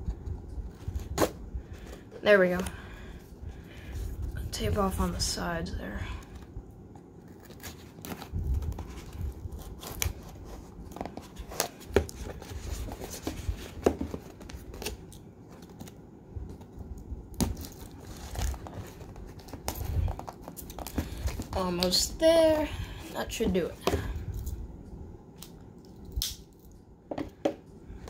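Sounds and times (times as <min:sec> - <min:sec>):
cardboard box being handled: 0:07.3 - 0:14.9, 0:17.4 - 0:21.6.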